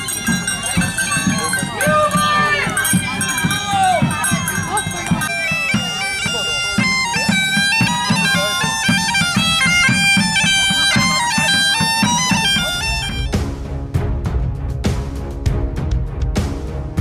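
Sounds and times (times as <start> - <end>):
bagpipes playing a melody: 0.0 - 13.4.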